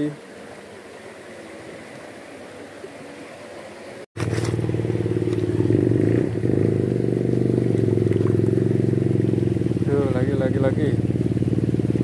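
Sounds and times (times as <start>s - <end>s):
low engine drone: 4.2s - 12.0s.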